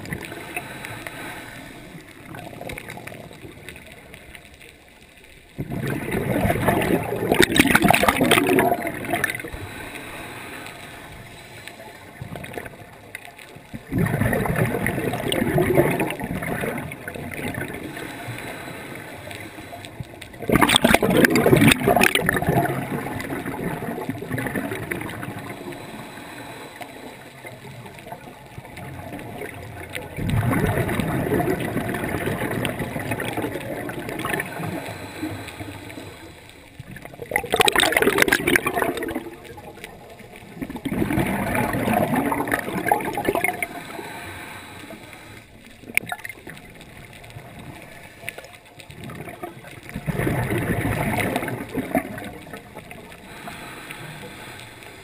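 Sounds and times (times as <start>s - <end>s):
exhaled bubbles rushing: 0.0s - 0.9s, 1.9s - 4.3s, 5.5s - 9.8s, 12.0s - 26.1s, 27.2s - 44.3s, 44.9s - 54.4s
diver breathing through regulator: 0.3s - 2.2s, 9.0s - 12.2s, 17.8s - 19.9s, 25.1s - 27.4s, 34.2s - 36.6s, 43.2s - 45.6s, 53.2s - 55.0s.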